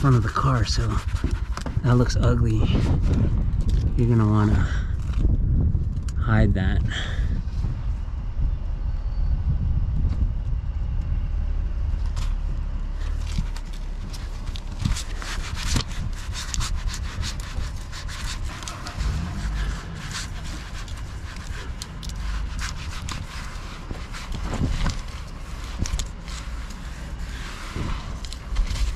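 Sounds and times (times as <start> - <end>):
rag rubbing scratchily: 0.0 - 4.5, 13.0 - 28.9
low rumble: 0.0 - 28.9.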